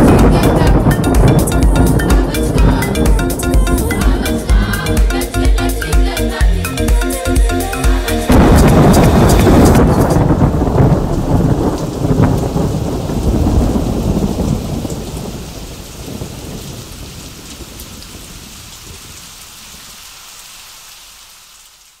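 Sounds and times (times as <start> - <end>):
rumbling thunder: 0.0 - 5.6, 8.3 - 19.2
steady rain: 0.0 - 22.0.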